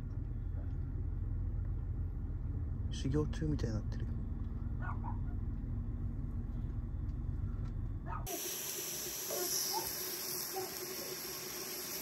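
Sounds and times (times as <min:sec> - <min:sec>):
low steady rumble: 0:00.0 - 0:08.3
food hissing in a pan: 0:08.3 - 0:12.0.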